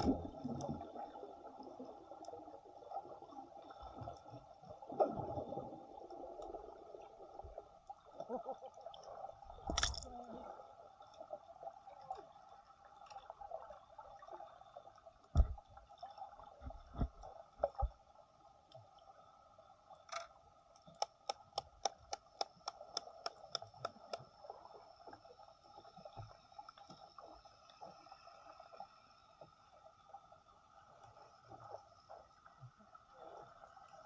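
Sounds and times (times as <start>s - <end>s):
low thumps: 15.3s - 15.7s
muffled underwater hum: 15.3s - 15.8s.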